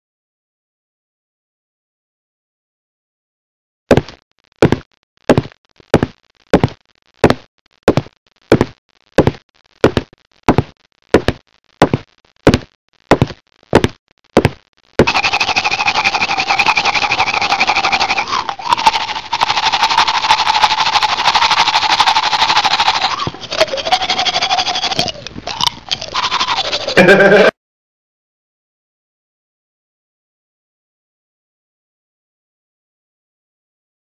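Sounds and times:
heavy footsteps: 3.9 - 14.6
steady hissing noise: 15.0 - 27.0.

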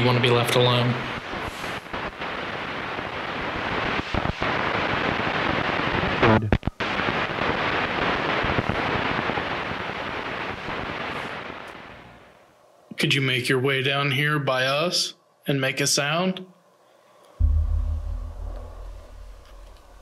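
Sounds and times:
radio static hiss: 0.0 - 12.5.

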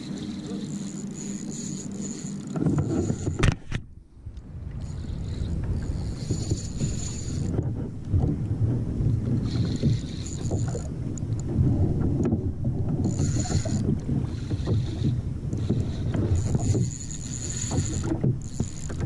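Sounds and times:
fishing reel whirring: 0.0 - 3.4, 4.3 - 7.6, 9.3 - 11.4, 12.9 - 19.0
water slapping against kayak: 0.0 - 19.0
wind buffeting microphone: 2.4 - 19.0.

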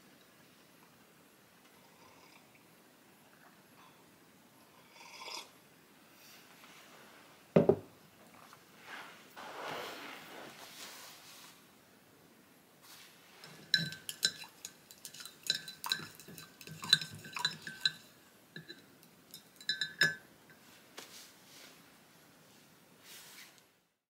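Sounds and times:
candy cane clinking in mug: 13.4 - 20.2.

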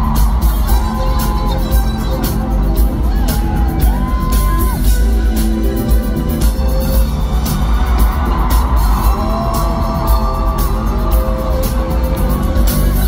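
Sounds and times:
loud pop music with heavy bass: 0.0 - 13.0.

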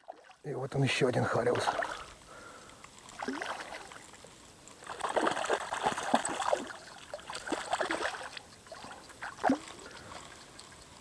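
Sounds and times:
fish thrashing and splashing: 3.0 - 4.2, 4.8 - 10.0.

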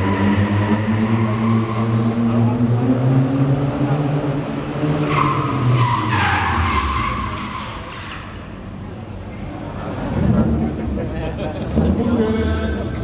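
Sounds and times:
car engine at high revs: 0.0 - 8.1.

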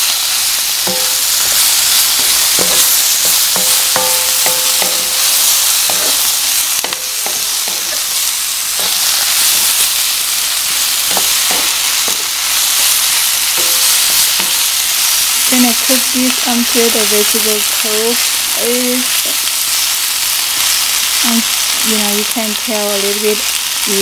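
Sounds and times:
food sizzling in hot oil: 0.0 - 24.0
spatula scraping and knocking pan: 0.8 - 9.8, 10.7 - 15.4.

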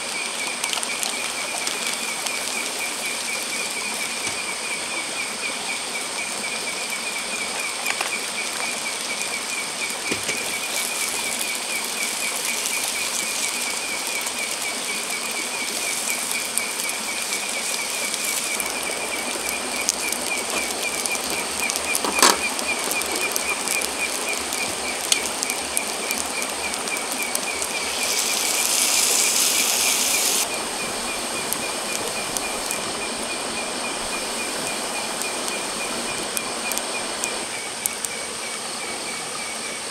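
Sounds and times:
campfire crackling: 0.0 - 38.9
night insects trilling: 0.0 - 39.9
high steady whine: 1.2 - 39.9
loud hiss: 9.7 - 38.5.

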